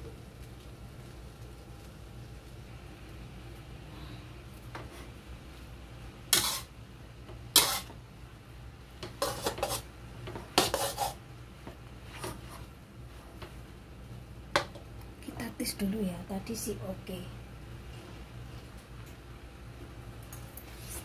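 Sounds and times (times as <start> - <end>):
metal spatula scraping a wok: 6.3 - 6.7, 7.5 - 8.0, 9.0 - 11.2.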